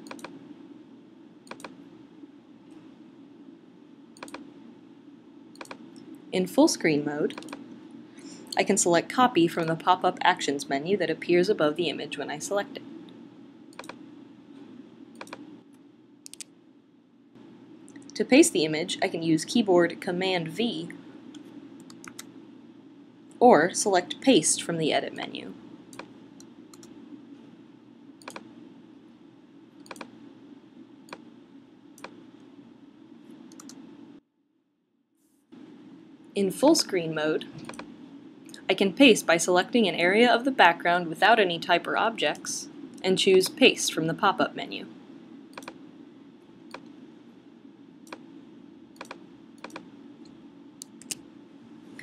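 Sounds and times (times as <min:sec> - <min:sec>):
computer mouse clicks: 0:00.0 - 0:00.4, 0:01.4 - 0:01.8, 0:04.2 - 0:04.5, 0:05.5 - 0:06.1, 0:07.3 - 0:07.6, 0:13.7 - 0:14.0, 0:15.1 - 0:16.5, 0:21.3 - 0:22.3, 0:25.9 - 0:27.0, 0:28.2 - 0:28.5, 0:29.8 - 0:30.1, 0:31.1 - 0:31.3, 0:32.0 - 0:32.2, 0:33.5 - 0:33.8, 0:37.6 - 0:37.9, 0:45.5 - 0:45.8, 0:46.7 - 0:47.0, 0:48.0 - 0:48.3, 0:49.0 - 0:51.2
steady low hum: 0:00.0 - 0:34.3, 0:35.4 - 0:52.0.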